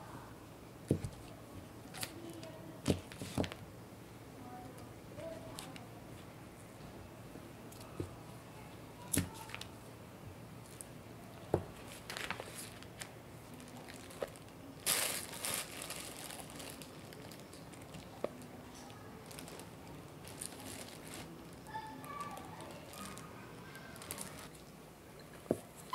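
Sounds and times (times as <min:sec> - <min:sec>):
butter paper crinkling: 0:11.8 - 0:24.7.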